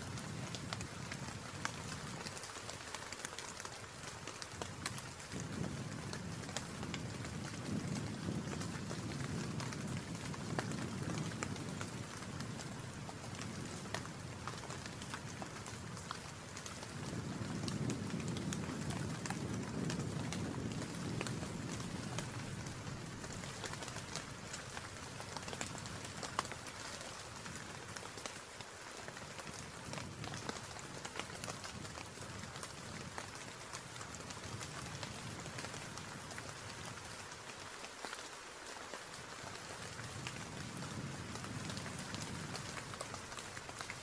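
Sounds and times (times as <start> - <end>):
heavy rain: 0.0 - 44.0
raindrops ticking: 0.1 - 44.0
low wind rumble: 4.7 - 27.8, 39.9 - 43.9.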